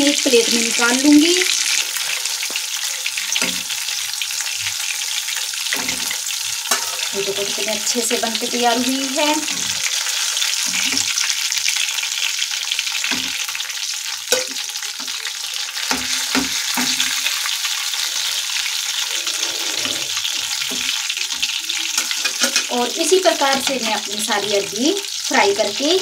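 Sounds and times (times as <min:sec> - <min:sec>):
food sizzling in hot oil: 0:00.0 - 0:26.0
spoon tapping against pan: 0:14.3 - 0:14.6.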